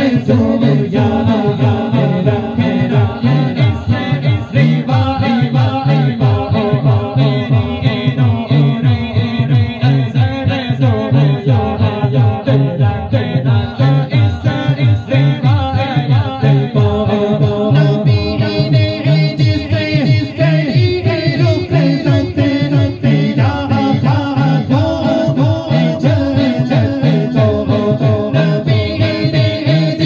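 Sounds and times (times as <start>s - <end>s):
low rhythmic pulse: 0.0s - 30.0s
men singing into microphones: 0.0s - 30.0s.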